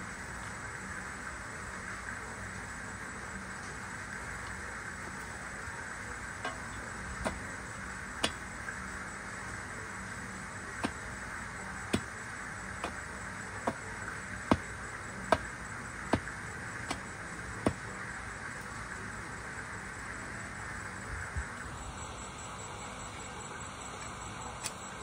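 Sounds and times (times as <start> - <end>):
constant hiss: 0.0 - 25.0
tool striking the ground: 6.4 - 7.4, 8.2 - 8.4, 10.8 - 11.0, 12.8 - 13.0, 16.1 - 16.3.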